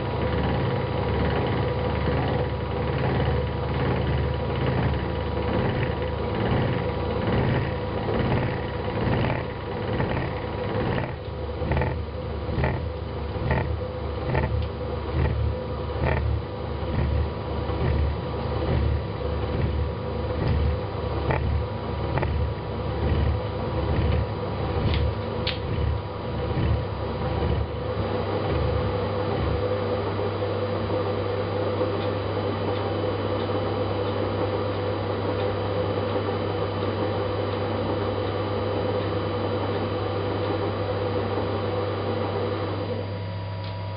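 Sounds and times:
milling machine rumble: 0.0s - 43.9s
steady machine hum: 0.0s - 43.9s
regular ticks from cutting: 4.7s - 27.7s.

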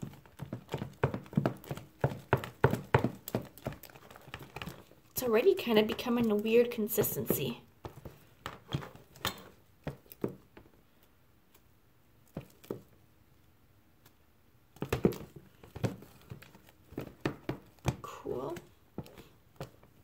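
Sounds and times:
sticky mixture stirred clicks: 0.0s - 13.0s, 13.9s - 20.0s.

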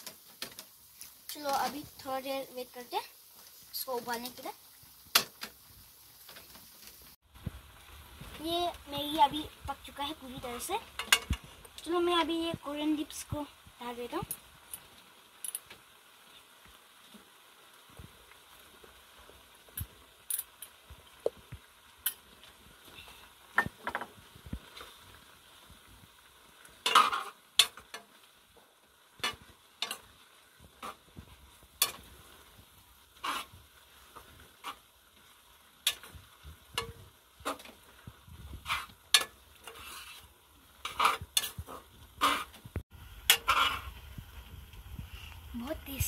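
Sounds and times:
metal spoon scraping a pan: 10.3s - 11.5s, 26.8s - 28.0s, 29.2s - 30.1s, 30.8s - 31.1s, 31.8s - 32.1s, 33.2s - 34.8s, 35.8s - 37.8s, 38.6s - 42.6s, 43.3s - 44.0s.

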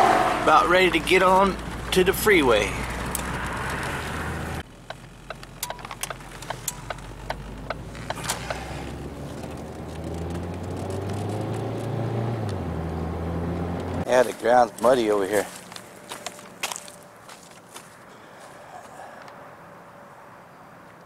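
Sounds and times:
car engine accelerating: 0.0s - 14.8s.

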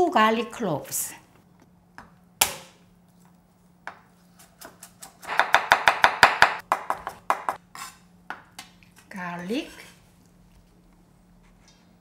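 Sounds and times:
knife chopping on wooden board: 3.9s - 7.6s.

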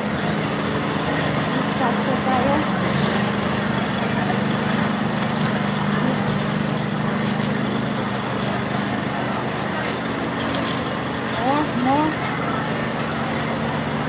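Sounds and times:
engine humming steadily: 0.0s - 14.0s
outdoor noise: 0.0s - 14.0s.

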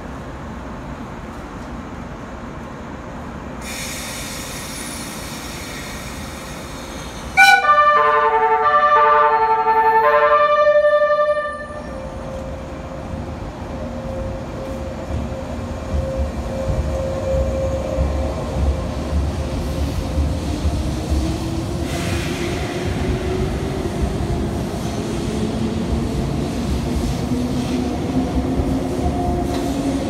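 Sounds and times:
train musical horn: 7.4s - 12.2s
train running rumble: 11.7s - 30.0s.

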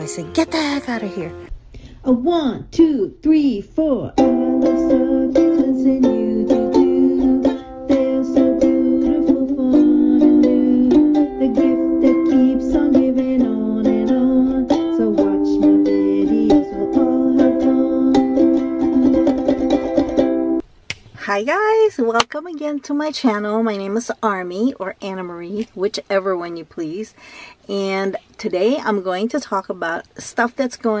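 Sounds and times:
string instrument strumming chords: 0.0s - 1.5s, 4.2s - 20.6s.

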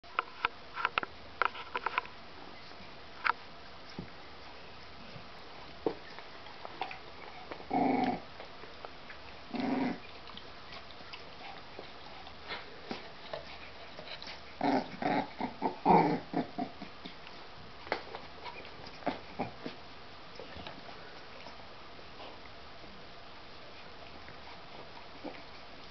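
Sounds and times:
puppies growling: 5.0s - 17.5s, 18.3s - 19.8s, 23.6s - 25.9s.

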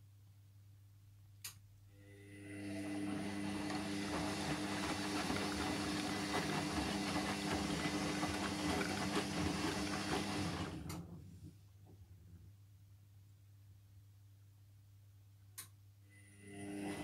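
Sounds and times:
washing machine motor hum: 2.1s - 12.2s, 16.3s - 17.0s.

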